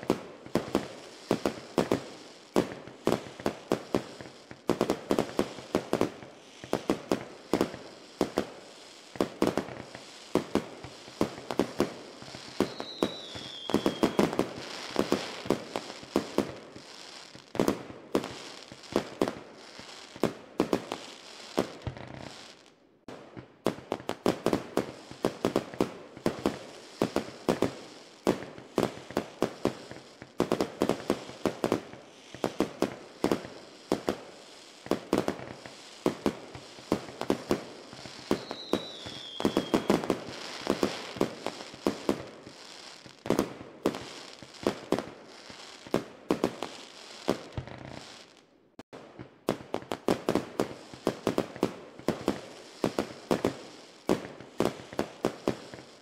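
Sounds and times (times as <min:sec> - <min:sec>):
fireworks popping and banging: 0:00.0 - 0:56.0
falling whistle: 0:12.7 - 0:14.2, 0:38.4 - 0:39.9.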